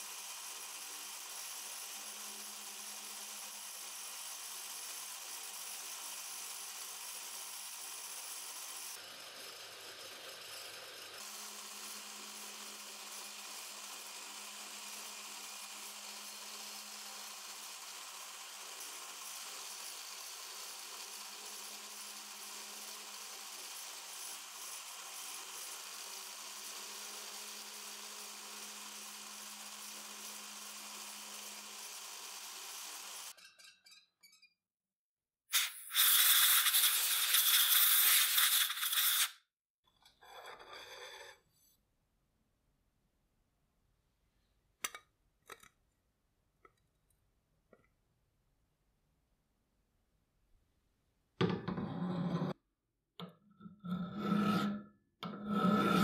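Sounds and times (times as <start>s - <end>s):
loud hiss: 35.5s - 39.3s.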